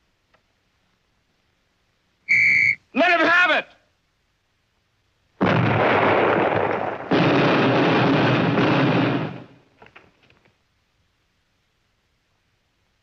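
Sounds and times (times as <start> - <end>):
artillery shell explosions: 5.4 - 9.8.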